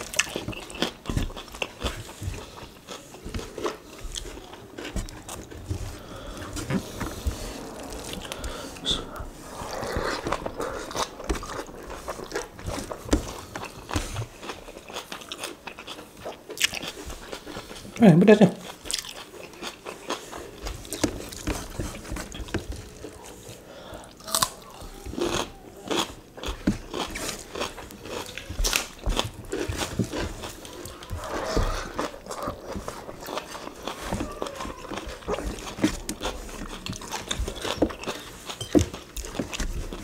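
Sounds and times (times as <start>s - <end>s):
wet chewing and crunching: 0.0s - 18.0s, 18.6s - 40.0s.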